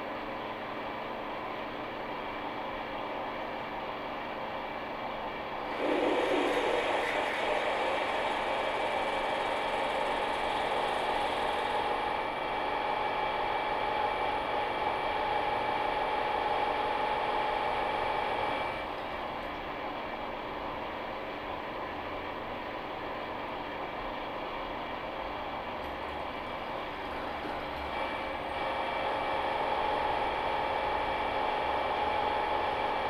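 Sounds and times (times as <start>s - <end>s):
milling machine drilling whine: 5.7s - 18.8s.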